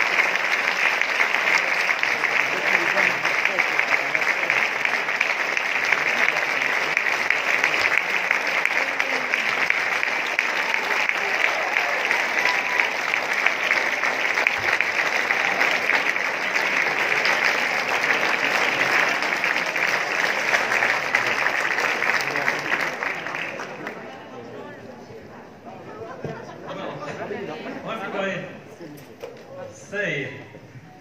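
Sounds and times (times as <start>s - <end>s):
audience applauding: 0.0s - 24.3s.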